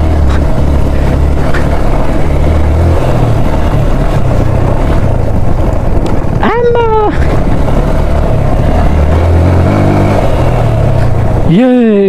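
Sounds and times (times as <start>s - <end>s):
motorcycle engine at low revs: 0.0s - 12.0s
steady rushing noise: 0.0s - 12.0s.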